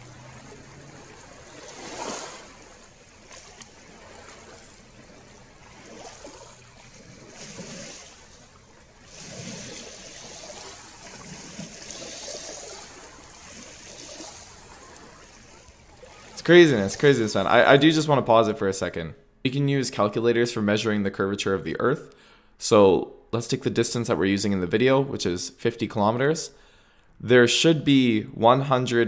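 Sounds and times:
small waves washing ashore: 0:00.0 - 0:18.0
light wind: 0:00.0 - 0:18.4.

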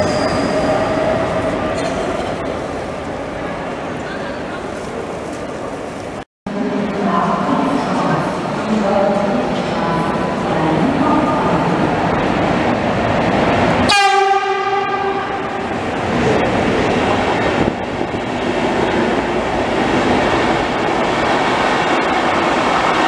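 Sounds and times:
train rumble and wheel noise: 0:00.0 - 0:23.0
train horn blast: 0:13.9 - 0:15.7.

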